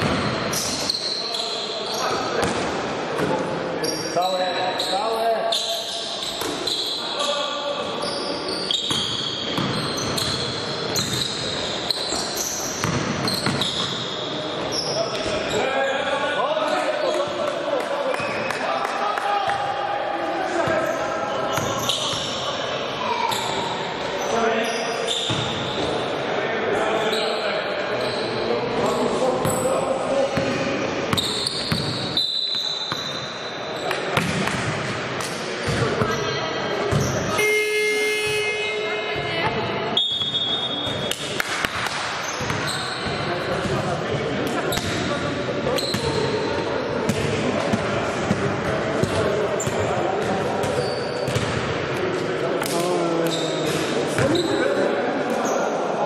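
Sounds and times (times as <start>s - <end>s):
sneakers squeaking on floor: 0.0s - 17.5s, 18.1s - 18.7s, 20.5s - 26.2s, 26.9s - 55.9s
voices in a hall: 0.0s - 56.0s
basketball bouncing: 8.9s - 11.2s, 12.8s - 14.0s, 48.2s - 51.7s
basketball bouncing on floor: 12.8s - 13.6s.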